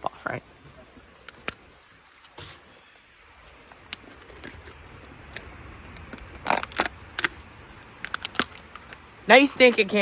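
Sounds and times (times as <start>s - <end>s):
plastic bottle crackling: 3.8s - 9.0s.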